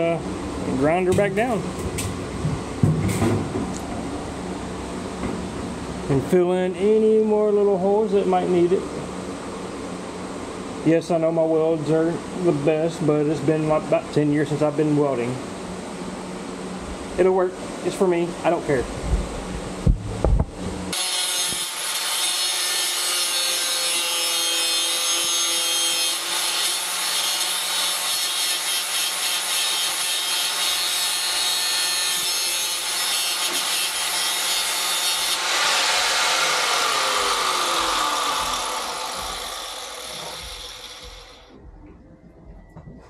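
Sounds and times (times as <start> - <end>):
angle grinder grinding metal: 20.9 - 41.5.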